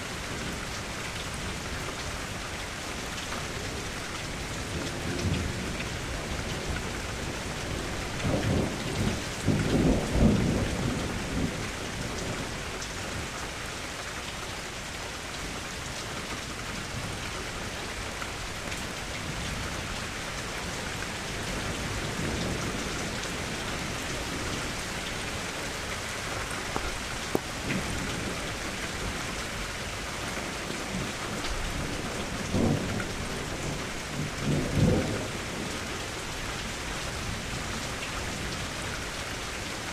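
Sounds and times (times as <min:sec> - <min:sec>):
steady rain falling: 0:00.0 - 0:39.9
low rolls of thunder: 0:06.5 - 0:12.5, 0:30.8 - 0:35.8.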